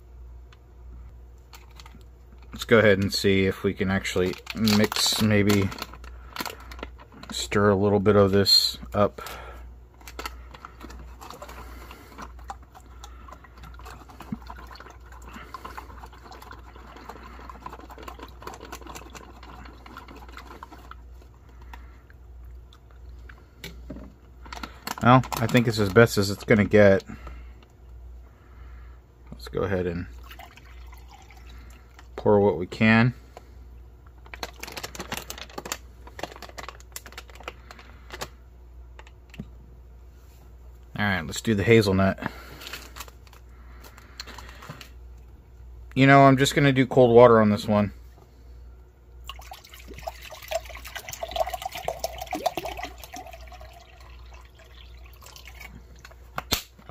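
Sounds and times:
foil crinkling: 0:03.8 - 0:07.8, 0:34.2 - 0:38.4, 0:42.4 - 0:44.9
water sloshing in a pouch: 0:10.7 - 0:21.1, 0:49.2 - 0:56.0.

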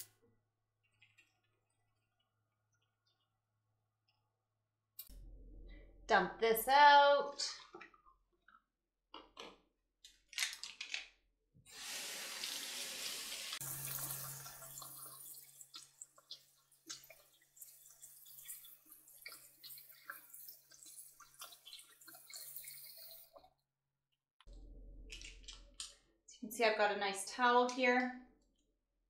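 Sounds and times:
faucet running: 0:11.7 - 0:23.5
water pouring into a sink: 0:11.7 - 0:23.5
brushes rinsed with splashes: 0:13.3 - 0:23.5.

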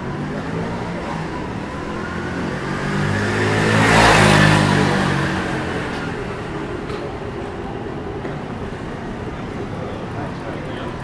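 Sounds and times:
vehicle passing close by: 0:00.0 - 0:07.6
street noise: 0:00.0 - 0:11.0.

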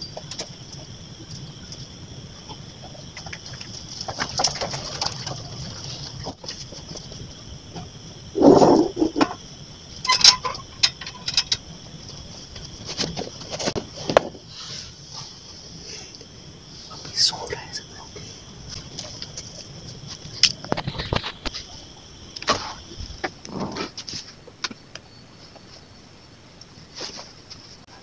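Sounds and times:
steady high hiss: 0:00.0 - 0:28.0
metal gate scraping: 0:10.0 - 0:11.6
metallic gate clanks: 0:10.0 - 0:11.6.

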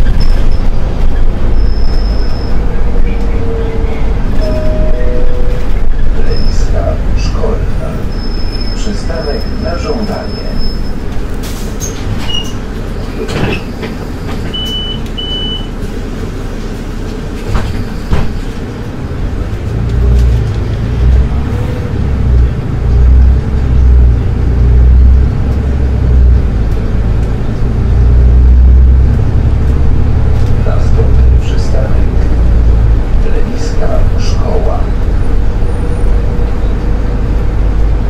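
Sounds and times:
bus engine and road rumble: 0:00.0 - 0:38.0
short high beeps: 0:04.4 - 0:05.7.

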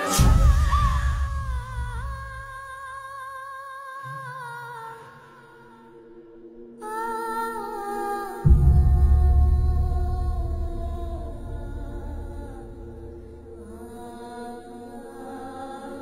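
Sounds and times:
low drone: 0:00.0 - 0:02.9, 0:08.4 - 0:15.0
wordless vocal melody: 0:00.0 - 0:16.0
deep boom: 0:00.1 - 0:02.6, 0:08.5 - 0:13.8.

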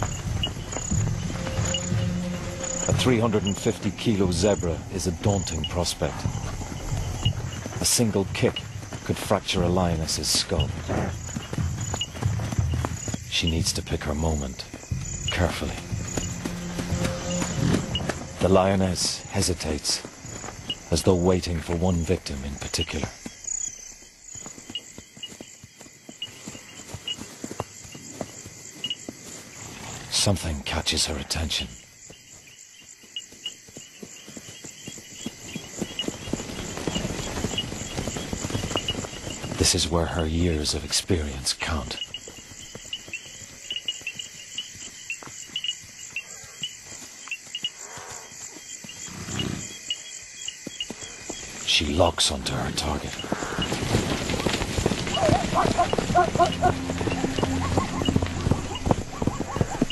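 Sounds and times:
hooves stepping through grass: 0:00.0 - 0:30.6, 0:31.7 - 0:59.9
insects chirping: 0:00.0 - 0:59.9.

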